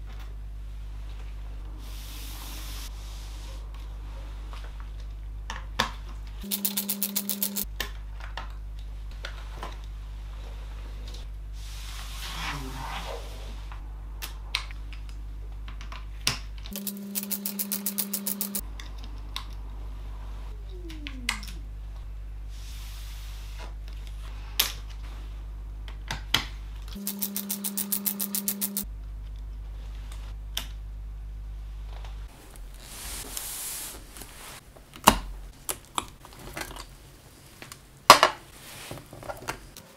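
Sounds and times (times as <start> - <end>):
electric screwdriver whirring: 6.4 - 7.6, 16.7 - 18.6, 27.0 - 28.8
low hum: 10.3 - 22.8.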